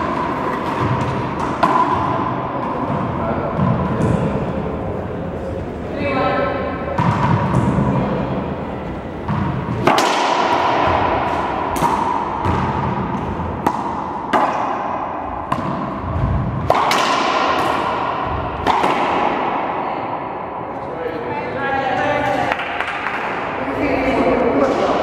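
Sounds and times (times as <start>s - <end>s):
racquetball ball cracking off walls: 9.3s - 19.7s.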